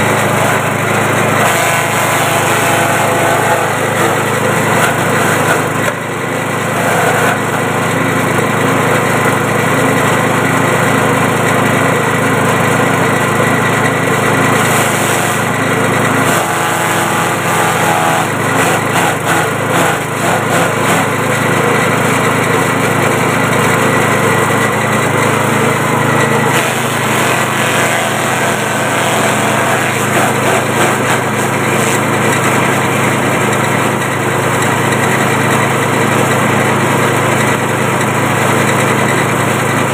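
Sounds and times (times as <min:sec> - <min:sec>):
small engine running: 0:00.0 - 0:39.9
blades chopping stalks: 0:25.5 - 0:32.6.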